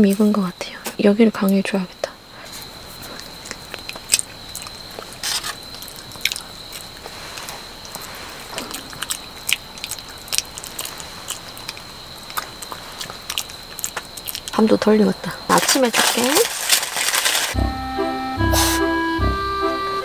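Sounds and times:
crunching and crinkling of foil food: 0:02.4 - 0:17.6.

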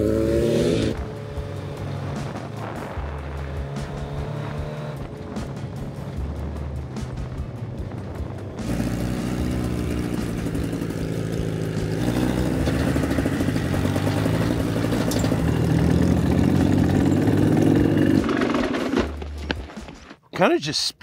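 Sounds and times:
motorcycle engine at low revs: 0:00.0 - 0:19.9.

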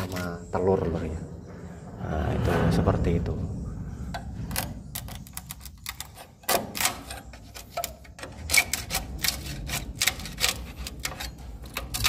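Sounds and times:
metal blade scraping wood: 0:00.0 - 0:00.3, 0:05.1 - 0:12.0.

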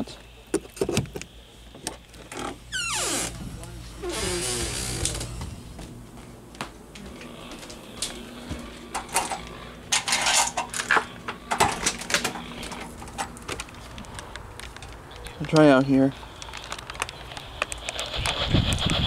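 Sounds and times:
handling noise: 0:00.5 - 0:18.5
footsteps: 0:01.7 - 0:19.0.

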